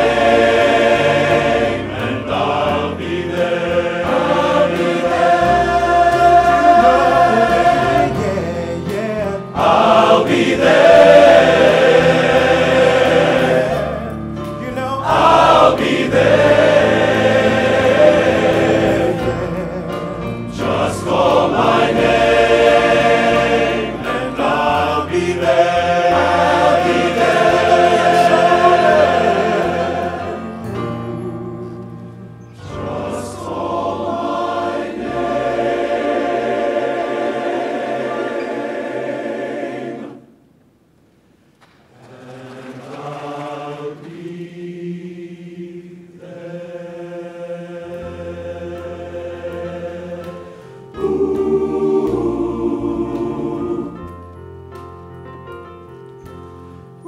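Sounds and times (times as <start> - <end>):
men's chorus singing: 0.0 - 40.3, 42.0 - 54.2
soloist singing: 6.2 - 11.0, 18.0 - 21.7.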